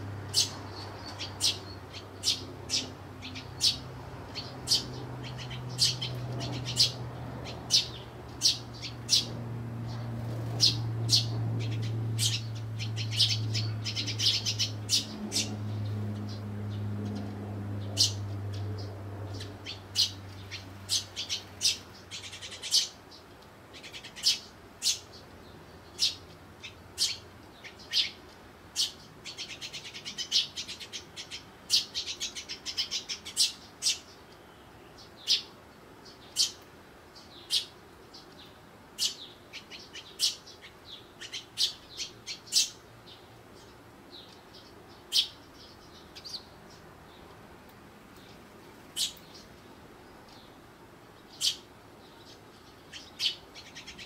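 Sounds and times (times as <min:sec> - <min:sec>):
sparrows chirping: 0:00.0 - 0:54.0.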